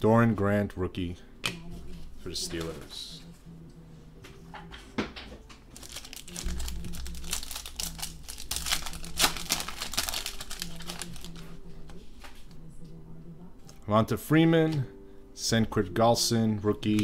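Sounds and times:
wrapper crackling and crinkling: 0:05.7 - 0:12.4.

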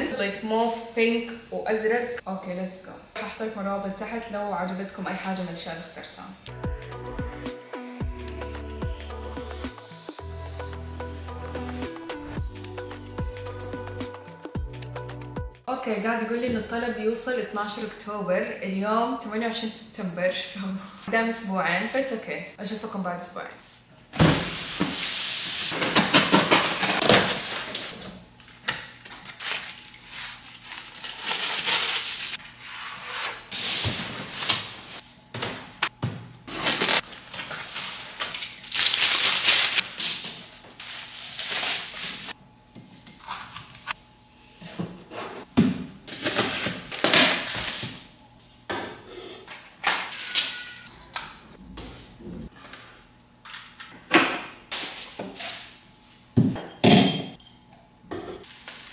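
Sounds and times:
cardboard rustling and tearing: 0:29.4 - 0:32.4, 0:36.5 - 0:39.9.

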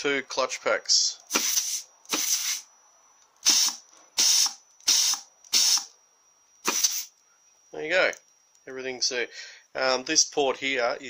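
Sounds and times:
compressed air hissing: 0:01.3 - 0:02.7, 0:03.4 - 0:05.9, 0:06.6 - 0:07.1.

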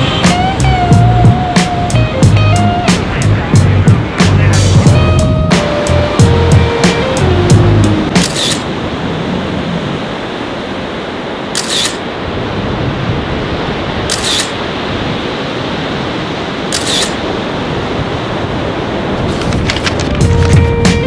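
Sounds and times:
surf breaking: 0:00.0 - 0:21.0
camera shutter clicking: 0:08.2 - 0:08.6, 0:11.6 - 0:12.0, 0:14.1 - 0:14.6, 0:16.7 - 0:17.2.

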